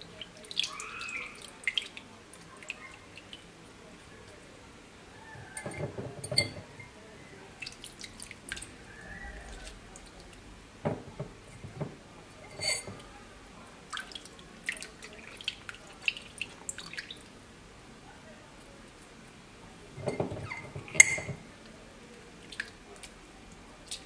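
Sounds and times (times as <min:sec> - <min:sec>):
brine dripping and splashing: 0:00.0 - 0:04.5, 0:07.5 - 0:10.4, 0:13.8 - 0:17.4, 0:20.0 - 0:24.0
small knocks: 0:05.4 - 0:06.8, 0:10.8 - 0:12.0, 0:20.0 - 0:21.4.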